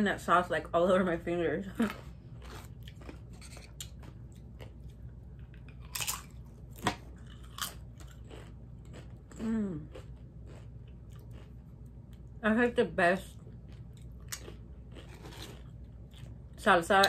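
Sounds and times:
chips crunching: 1.9s - 11.6s, 13.6s - 16.4s.

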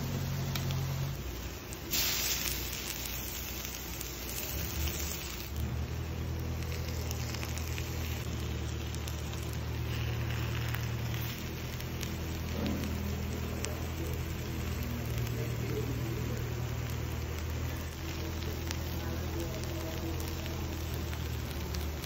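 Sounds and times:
meat sizzling on hot stone: 0.0s - 22.0s.

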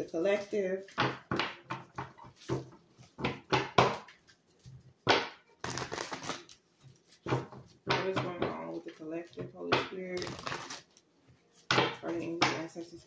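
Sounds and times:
cards being shuffled: 5.6s - 7.4s, 10.1s - 11.0s.

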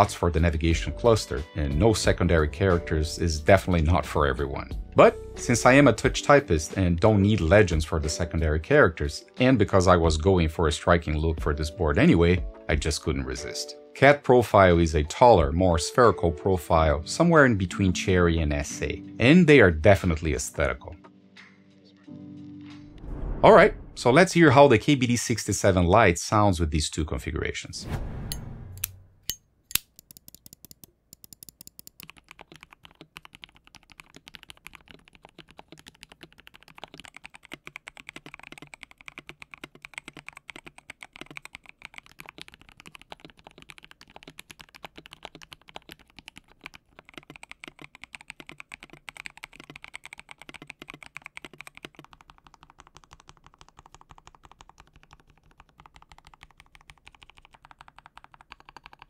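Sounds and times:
mechanical keyboard typing: 29.7s - 59.0s.

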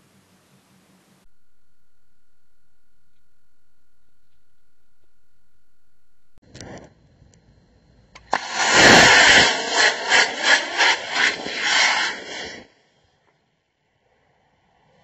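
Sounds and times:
rocket motor ignition click: 8.2s - 11.8s
rocket exhaust rushing hiss: 8.2s - 12.7s.

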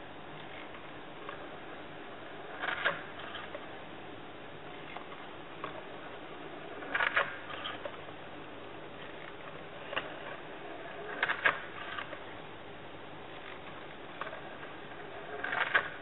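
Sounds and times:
mechanism clicks and knocks: 2.6s - 3.6s, 6.8s - 8.0s, 11.1s - 12.2s, 15.4s - 16.0s.

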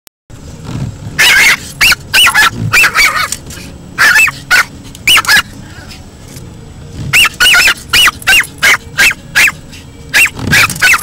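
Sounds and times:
car hum: 0.3s - 11.0s
small dog yapping: 1.2s - 3.4s, 4.0s - 5.5s, 7.1s - 11.0s.

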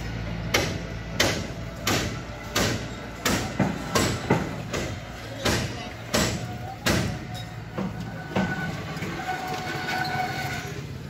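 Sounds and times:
sharp knocks: 0.5s - 8.6s.

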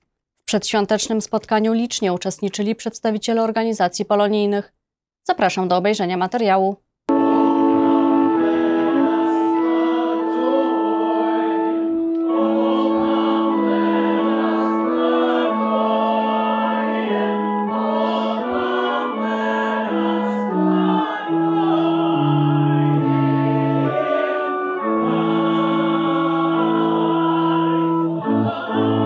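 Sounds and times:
electric keyboard chords: 7.1s - 29.0s
group singing a carol: 7.1s - 29.0s.

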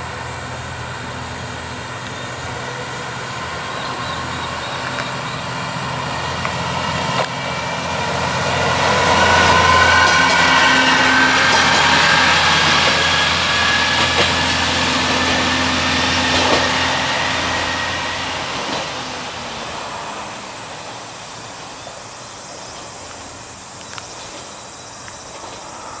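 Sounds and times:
high whine: 0.0s - 20.8s
diesel railcar engine hum: 0.0s - 26.0s.

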